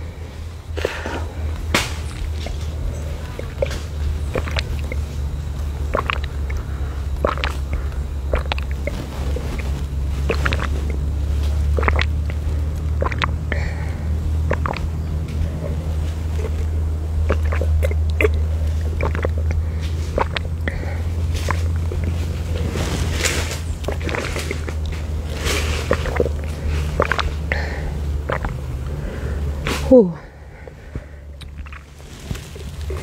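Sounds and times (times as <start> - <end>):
low rumble: 0.0 - 33.0
person gulping and sipping: 0.7 - 29.2, 30.2 - 33.0.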